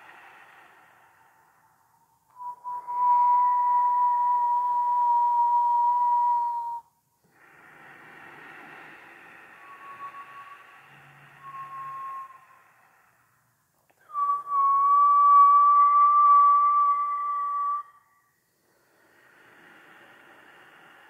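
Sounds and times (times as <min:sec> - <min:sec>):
breathy breath: 0:00.0 - 0:03.0, 0:07.2 - 0:14.2, 0:17.5 - 0:21.0
whistling through pursed lips: 0:02.3 - 0:06.9, 0:08.7 - 0:13.3, 0:13.9 - 0:18.4.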